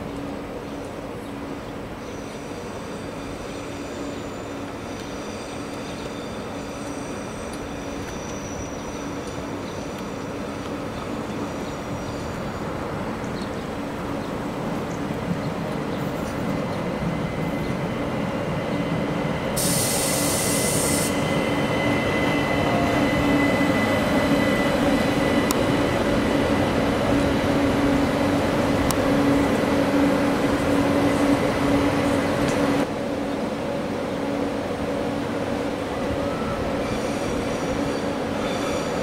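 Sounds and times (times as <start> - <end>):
train running on track: 0.0 - 39.0
short hiss burst: 19.6 - 21.2.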